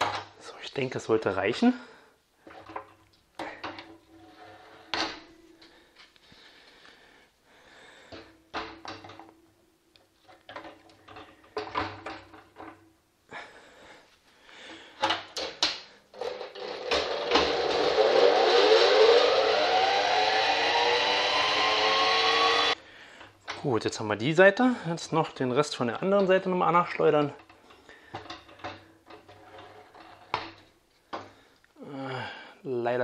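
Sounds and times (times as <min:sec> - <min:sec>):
electric motor whining: 0:16.6 - 0:22.8.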